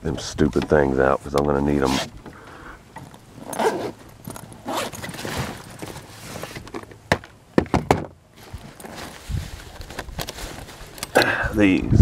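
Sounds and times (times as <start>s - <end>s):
backpack zipper pulled open: 1.8s - 2.1s, 3.4s - 5.8s.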